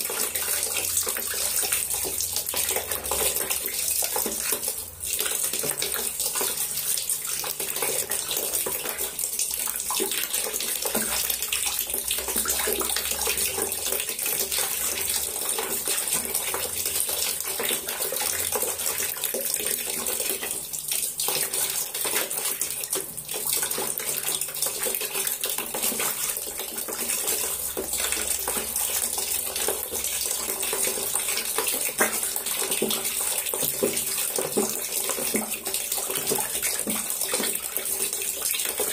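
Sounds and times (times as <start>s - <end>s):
water splashing in a tub: 0.0s - 38.9s.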